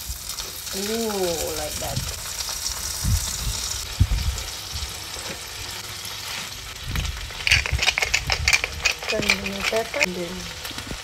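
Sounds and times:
lobsters sizzling in frying pan: 0.0 - 11.0
spatula and fork scraping pan: 7.4 - 10.3.

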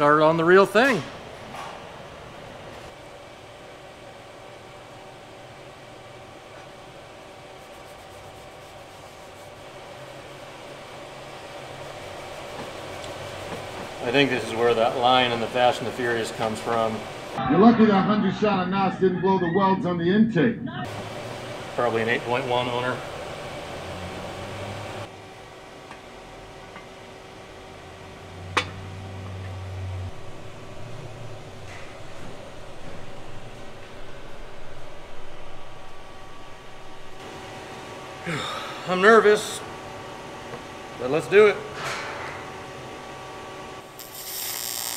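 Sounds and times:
workshop hum: 0.0 - 44.9
low hum: 26.5 - 38.8
even hiss: 43.9 - 44.9.

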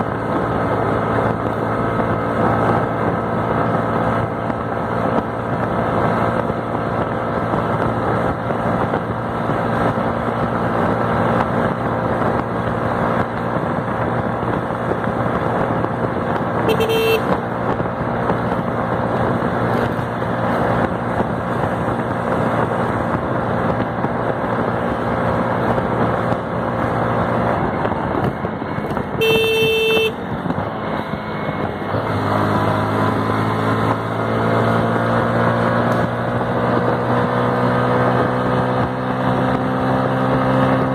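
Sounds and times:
motorcycle engine running hard: 0.0 - 40.9
wind and road noise: 0.0 - 40.9
vehicle horn honking: 16.6 - 17.4, 29.2 - 30.2.

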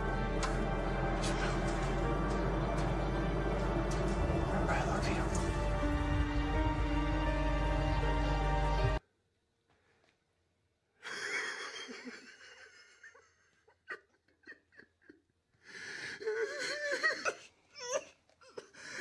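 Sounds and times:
man crying and sobbing: 13.9 - 19.0.

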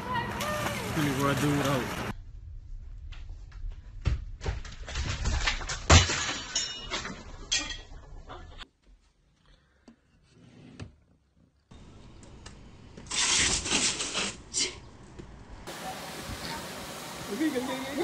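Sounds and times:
objects crashing and banging: 4.1 - 8.6
clinking breaking ring: 5.9 - 8.1.

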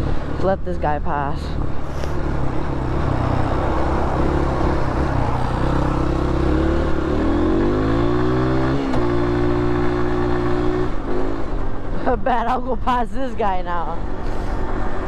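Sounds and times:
motorcycle engine revving: 1.4 - 12.0.

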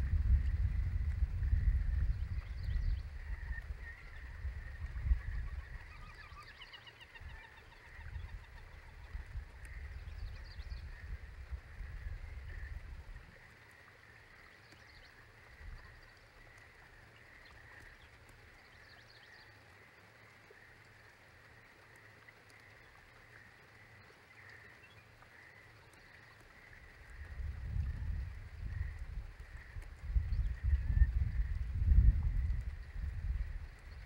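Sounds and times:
low rumble: 0.0 - 3.8.

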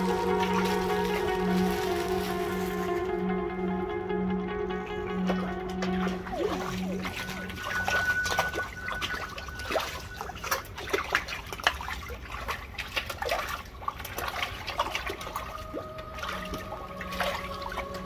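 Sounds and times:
water lapping against a wall: 5.8 - 18.0
small quick splashes: 7.9 - 15.6.

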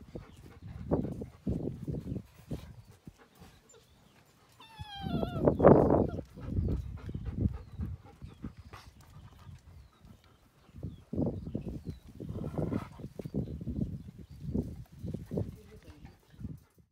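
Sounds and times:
dog whining: 4.6 - 6.5.

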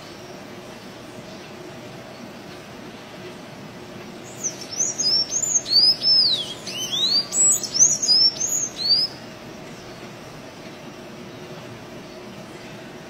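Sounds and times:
bird singing squeaky notes: 4.3 - 9.2.

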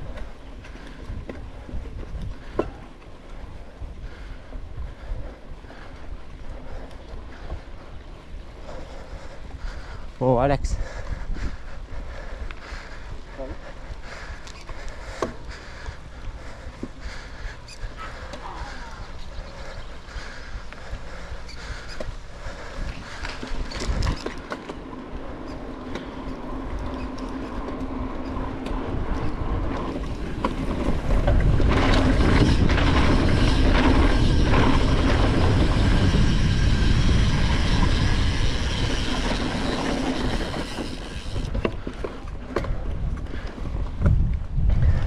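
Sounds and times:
bike tyres rumbling over path: 0.0 - 45.0
wind rushing over microphone: 7.3 - 14.4, 25.1 - 45.0.

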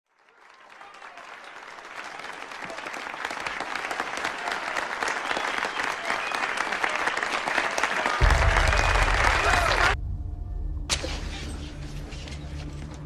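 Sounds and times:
crowd applauding: 0.1 - 10.0.

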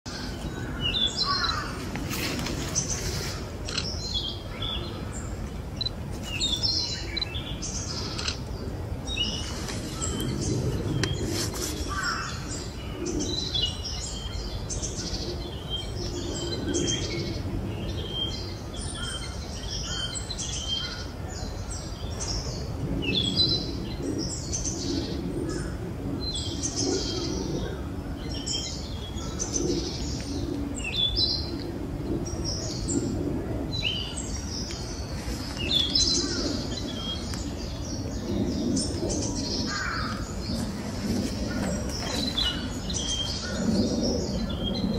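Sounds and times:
bird singing: 0.1 - 1.8, 3.7 - 11.2, 32.2 - 40.7, 41.4 - 44.9.

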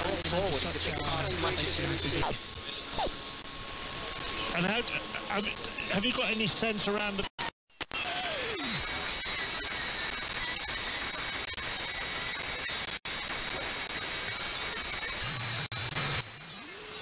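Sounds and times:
radio hiss and static: 0.0 - 7.5, 8.7 - 17.0
high-pitched heterodyne whistle: 8.0 - 12.9, 13.5 - 17.0.

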